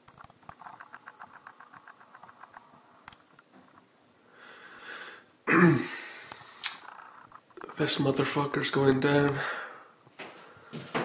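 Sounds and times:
person breathing in: 4.3s - 6.6s, 9.4s - 10.8s.

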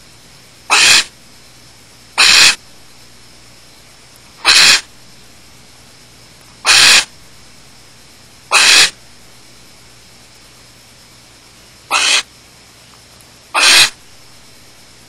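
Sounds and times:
owl rasping hisses: 0.7s - 1.1s, 2.2s - 2.6s, 4.4s - 4.9s, 6.6s - 7.1s, 8.5s - 9.0s, 11.9s - 12.3s, 13.5s - 14.0s.

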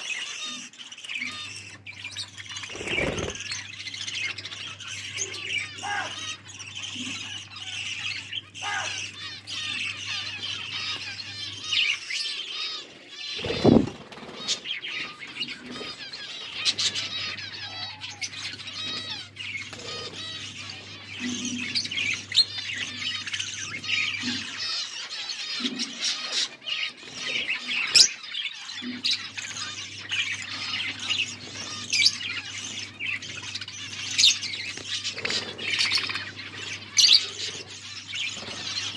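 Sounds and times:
budgerigars chattering and chirping: 0.0s - 38.9s.

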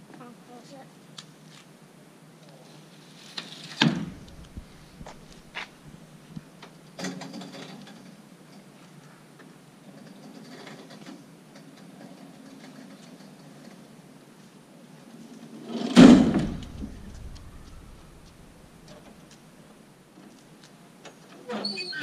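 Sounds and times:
faint ramp rattling: 3.4s - 6.3s, 15.7s - 20.4s
loud knock of trailer ramp: 3.8s - 4.8s, 15.8s - 18.3s.

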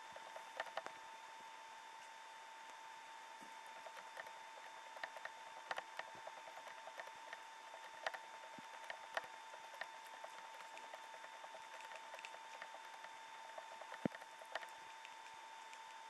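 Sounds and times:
faint steady whine: 0.0s - 16.0s.

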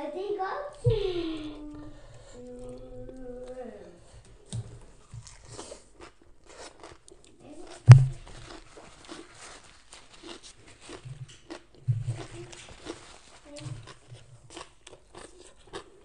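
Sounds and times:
crunchy chewing: 2.2s - 16.0s
loud thump: 7.9s - 8.3s.

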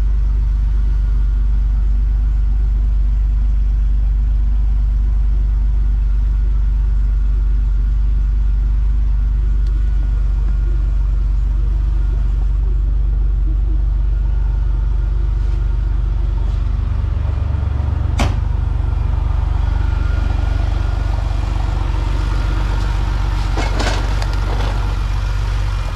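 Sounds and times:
car engine idling: 0.0s - 25.9s
sharp knock: 18.2s - 18.4s.

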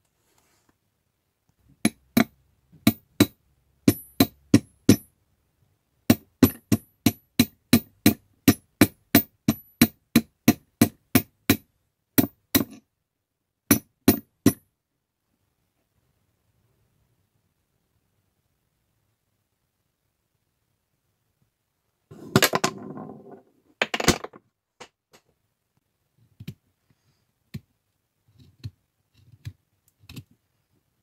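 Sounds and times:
hammer tapping metal: 1.8s - 5.1s.

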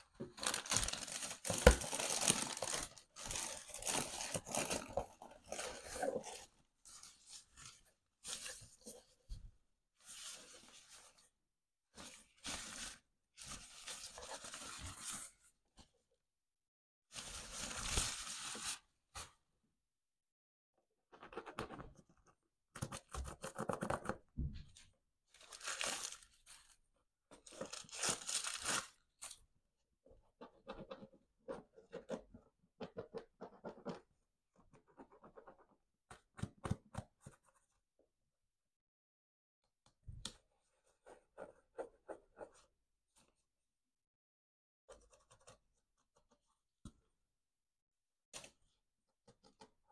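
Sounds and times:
packaging rustling and crinkling: 0.2s - 6.3s.

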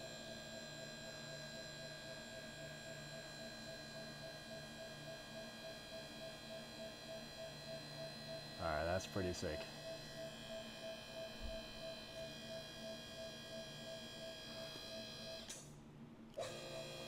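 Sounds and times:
hydraulic pump motor humming: 16.4s - 17.0s.

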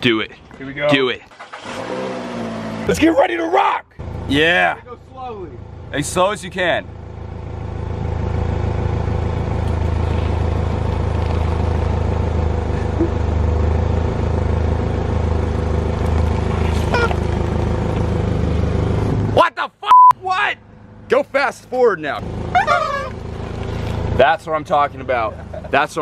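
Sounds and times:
car engine running: 4.0s - 19.5s, 20.3s - 26.0s
rubber chickens squeaking: 16.7s - 17.4s, 22.5s - 23.3s.

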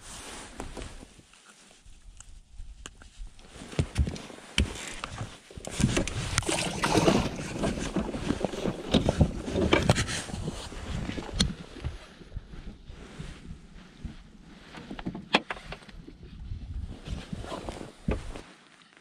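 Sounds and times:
fabric rustling on microphone: 0.0s - 19.0s.

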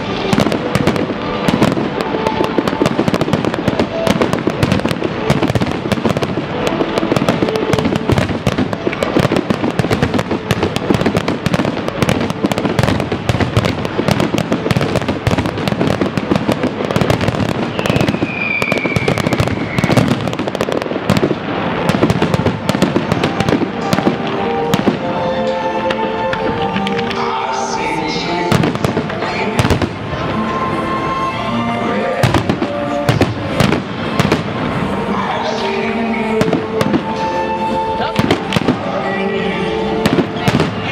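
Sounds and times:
fireworks bursts and crackle: 0.0s - 40.9s
music: 0.0s - 40.9s
high falling whistle: 17.7s - 20.1s.

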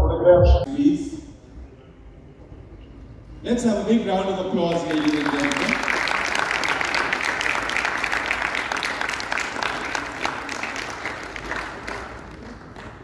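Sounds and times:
audience applauding: 4.7s - 13.0s.

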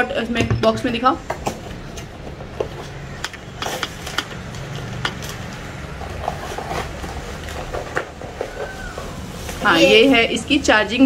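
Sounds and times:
cardboard and paper crinkling: 1.8s - 10.4s.

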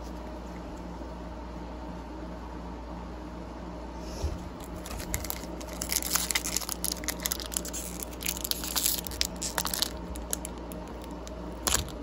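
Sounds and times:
foil wrapper crinkling and tearing: 4.6s - 12.0s.

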